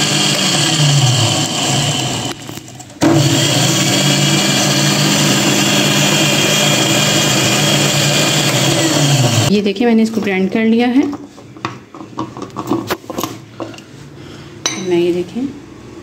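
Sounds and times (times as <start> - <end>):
mixer grinder whirring: 0.0 - 9.5.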